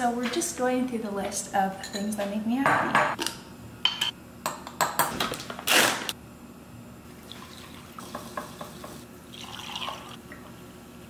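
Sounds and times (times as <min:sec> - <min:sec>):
water trickling into bowl: 0:07.2 - 0:08.4, 0:09.3 - 0:10.2.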